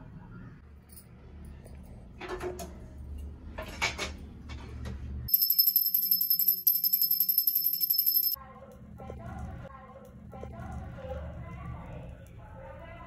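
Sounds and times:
small hand bell ringing rapidly: 0:05.3 - 0:08.4.

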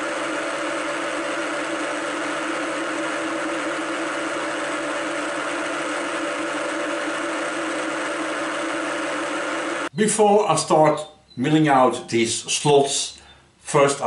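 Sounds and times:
milling machine humming: 0:00.0 - 0:09.9.

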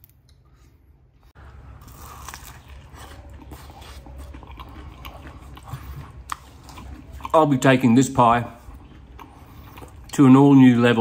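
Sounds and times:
man chewing food: 0:00.1 - 0:11.0.

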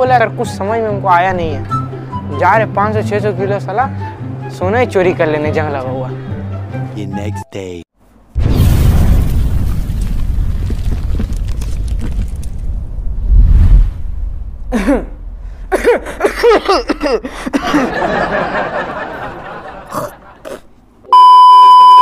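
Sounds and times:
deep rumbling boom: 0:08.4 - 0:15.9
chuckling laughter: 0:14.7 - 0:20.7.

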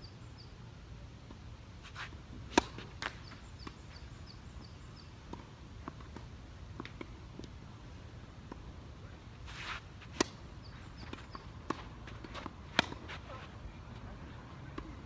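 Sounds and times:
tennis ball hit by racket: 0:01.9 - 0:03.8, 0:09.5 - 0:10.4, 0:11.0 - 0:13.5
tennis ball bouncing: 0:02.0 - 0:03.8, 0:09.6 - 0:14.0.

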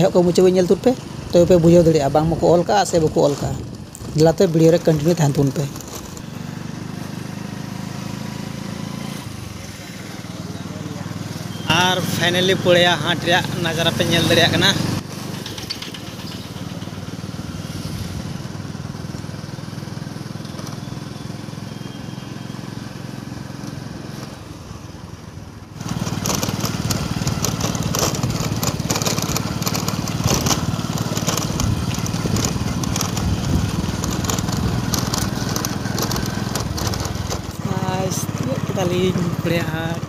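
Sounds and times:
motorcycle engine running: 0:00.0 - 0:40.0
dense crackling noise: 0:25.8 - 0:37.6.

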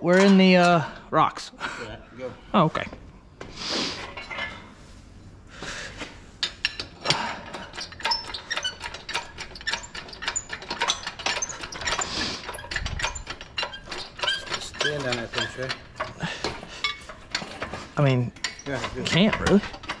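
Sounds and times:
chain clinking on engine hoist: 0:06.4 - 0:20.0.

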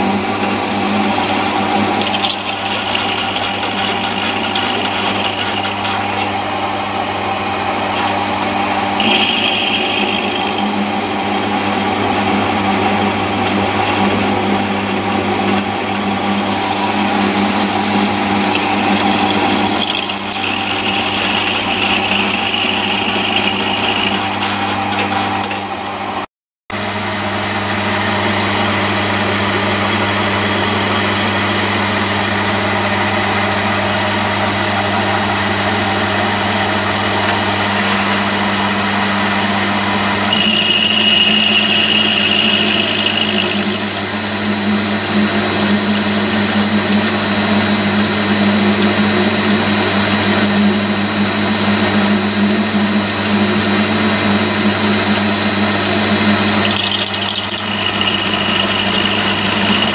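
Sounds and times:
electric motor milling steel: 0:00.0 - 0:26.2, 0:34.6 - 0:47.7, 0:53.1 - 0:59.9
thin high whine: 0:00.0 - 0:26.2, 0:36.0 - 0:44.3, 0:55.2 - 0:59.9
higher ringing tone: 0:07.5 - 0:13.1, 0:40.3 - 0:44.0.

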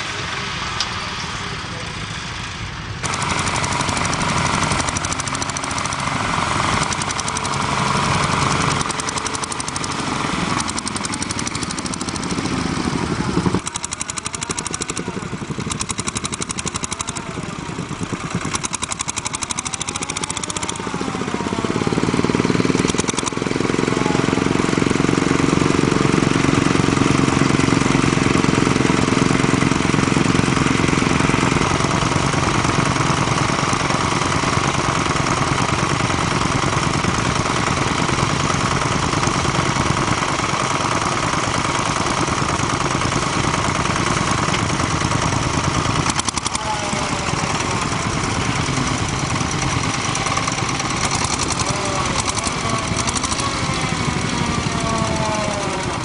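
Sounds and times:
small tractor engine running: 0:00.0 - 0:56.0.

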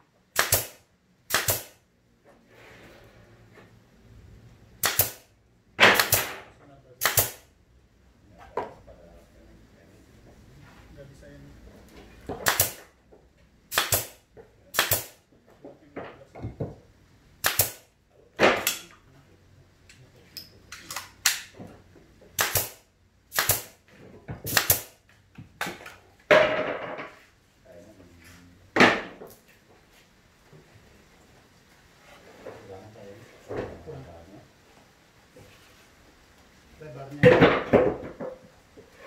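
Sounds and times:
nail gun firing into wood: 0:00.3 - 0:01.8, 0:04.8 - 0:07.5, 0:12.4 - 0:12.9, 0:13.7 - 0:15.2, 0:17.4 - 0:18.9, 0:22.4 - 0:23.8, 0:24.5 - 0:25.0.

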